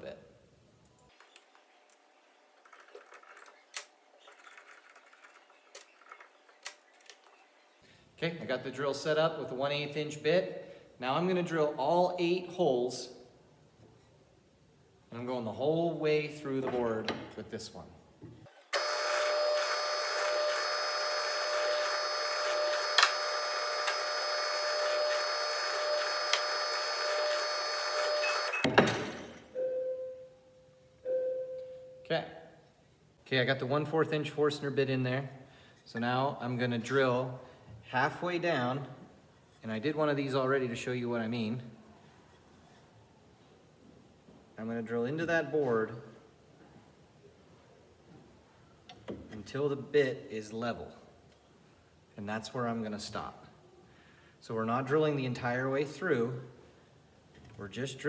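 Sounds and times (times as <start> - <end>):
drill press whining: 18.6 - 28.7.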